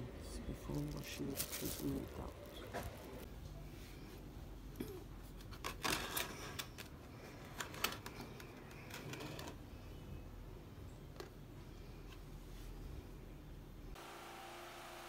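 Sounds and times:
rustling handling noise: 0:00.5 - 0:04.3.

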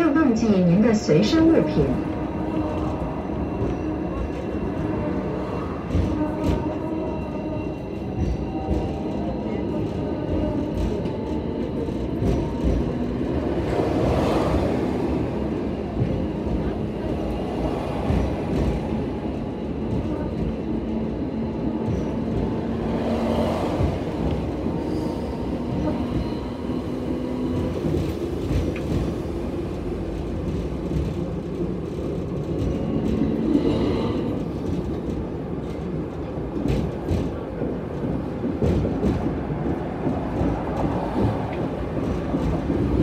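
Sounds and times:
tram rumbling and rattling: 0:00.0 - 0:43.0.

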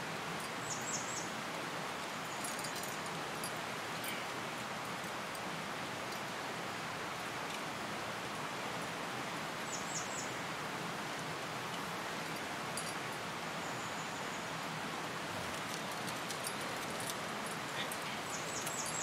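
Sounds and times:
outdoor background hiss: 0:00.0 - 0:19.0.

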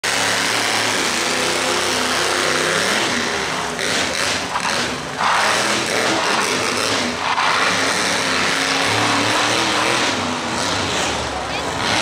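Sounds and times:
harsh rush of noise: 0:00.0 - 0:11.8
truck engine revving: 0:00.0 - 0:12.0.

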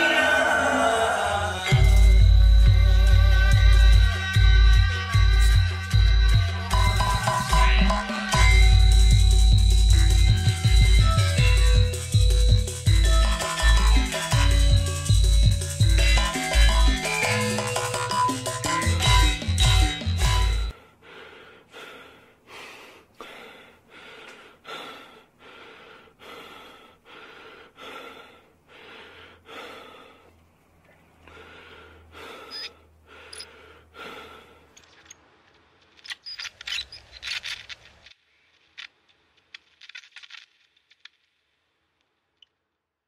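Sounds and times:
sharp clicks: 0:34.7 - 0:41.2.

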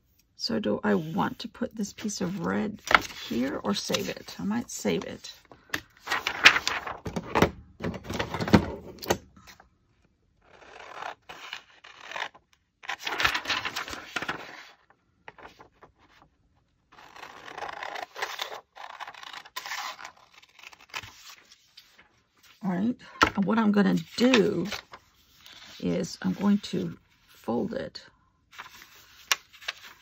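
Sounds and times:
paper rustling and scraping: 0:00.9 - 0:07.2, 0:10.5 - 0:16.3, 0:17.0 - 0:22.7, 0:23.3 - 0:27.5, 0:28.5 - 0:30.0.

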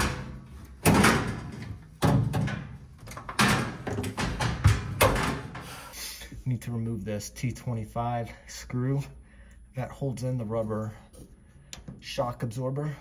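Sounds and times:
washer lid knocks and rattles: 0:00.0 - 0:05.6.

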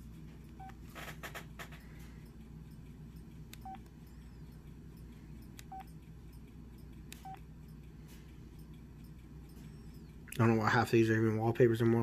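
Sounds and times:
steady low hum: 0:00.0 - 0:12.0
phone keypress beeps: 0:00.4 - 0:00.8, 0:01.6 - 0:07.8, 0:08.6 - 0:10.2.

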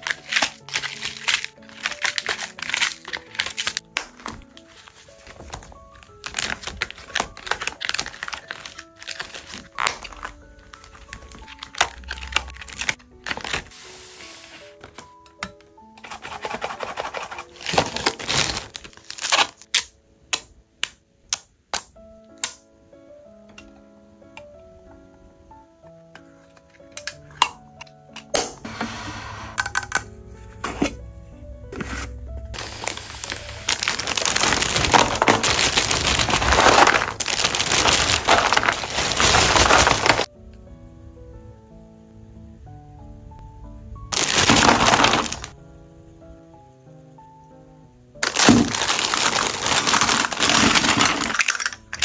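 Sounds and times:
plastic sticker sheet crinkling: 0:00.0 - 0:15.0, 0:16.0 - 0:19.9, 0:32.6 - 0:40.3, 0:44.1 - 0:45.6, 0:48.2 - 0:52.0.

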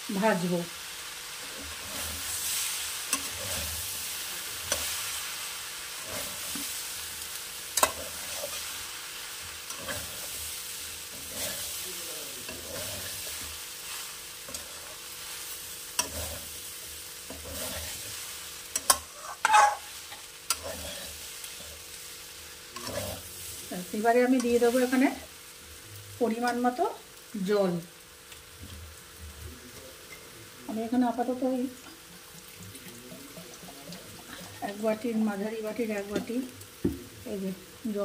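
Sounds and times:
food sizzling: 0:00.0 - 0:38.0
metal spatula scraping a pan: 0:01.4 - 0:07.0, 0:07.6 - 0:21.9, 0:22.7 - 0:23.6.

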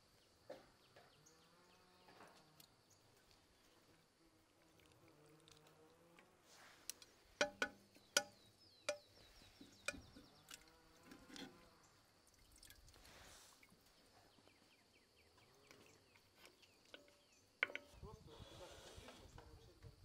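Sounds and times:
faint liquid dripping: 0:02.5 - 0:13.9
metal tongs clinking on pot: 0:09.8 - 0:10.2.

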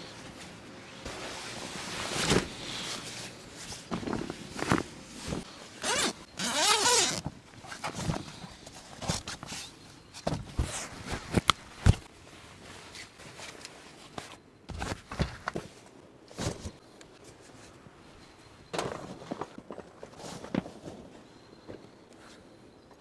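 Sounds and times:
fabric rustling: 0:00.2 - 0:08.2.

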